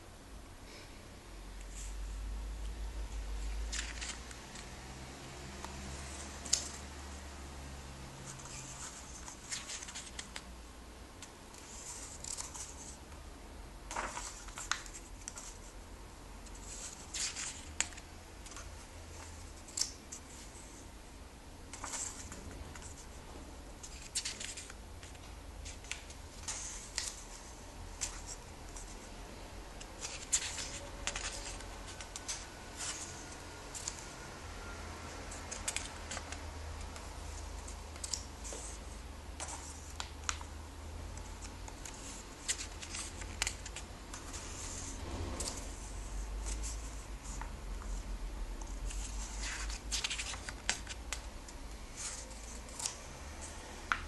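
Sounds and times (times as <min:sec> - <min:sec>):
pages being turned: 0:03.4 - 0:04.7, 0:05.6 - 0:06.9, 0:08.3 - 0:10.5, 0:11.5 - 0:13.0, 0:13.9 - 0:15.7, 0:16.5 - 0:20.5, 0:21.7 - 0:23.1, 0:23.8 - 0:29.0, 0:29.8 - 0:34.0, 0:35.3 - 0:40.5, 0:41.2 - 0:48.0, 0:48.6 - 0:51.3, 0:51.9 - 0:54.0.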